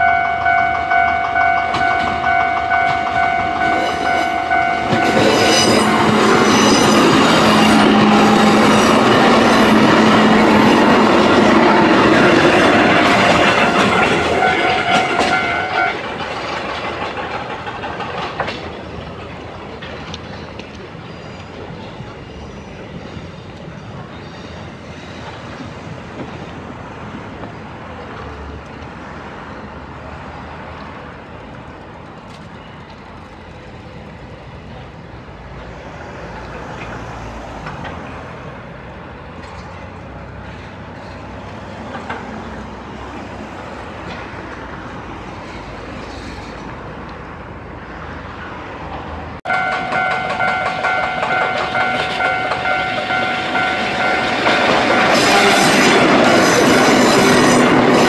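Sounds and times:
level-crossing bell ringing: 0.0 - 7.8, 12.5 - 16.0, 49.5 - 55.9
city traffic hum: 0.0 - 58.0.

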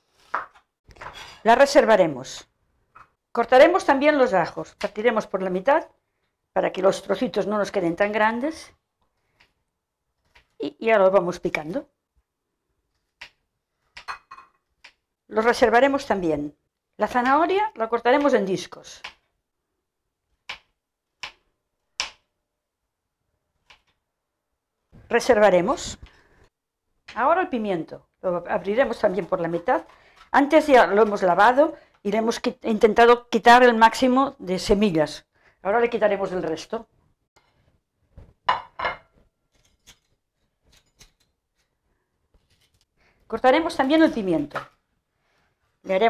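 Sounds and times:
knife scraping ceramic plate: 0.2 - 1.5, 38.9 - 41.3.

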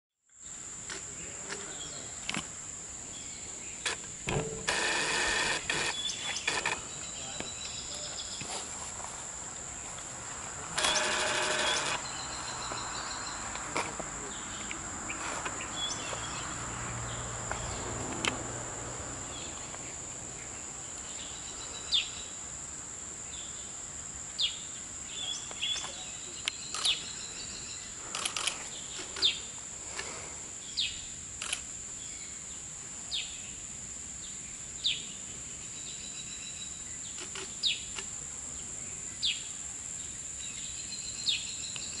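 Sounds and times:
bird chirping: 1.2 - 8.6, 10.8 - 17.9, 19.2 - 22.4, 23.3 - 29.6, 34.2 - 38.0, 39.0 - 42.0
high-pitched insect drone: 4.3 - 8.0, 10.8 - 13.4.

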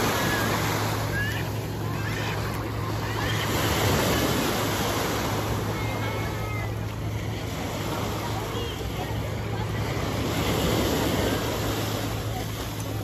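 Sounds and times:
low steady hum: 0.0 - 13.0
sea waves washing onto beach: 0.0 - 13.0.

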